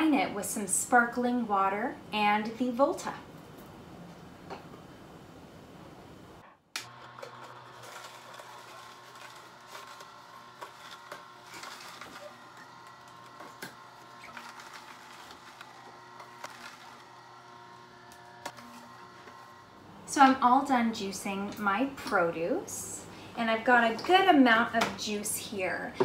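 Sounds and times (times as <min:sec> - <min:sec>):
produce crackling in juicer: 0:06.7 - 0:19.9
juicer motor hum: 0:06.7 - 0:20.7.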